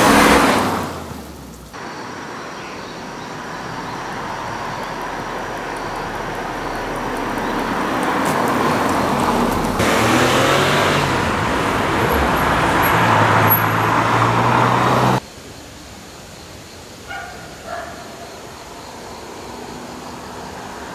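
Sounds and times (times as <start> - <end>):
car driving by: 0.0 - 15.2
low engine hum: 0.0 - 15.2.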